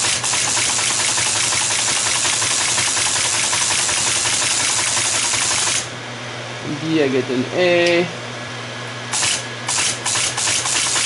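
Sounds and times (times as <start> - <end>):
teletype printing clatter: 0.0 - 5.8, 9.2 - 11.0.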